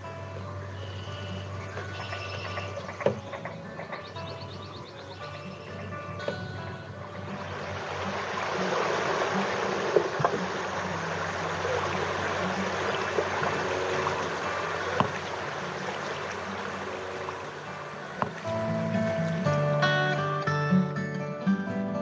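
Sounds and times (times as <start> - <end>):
water rushing: 0.0 - 20.5.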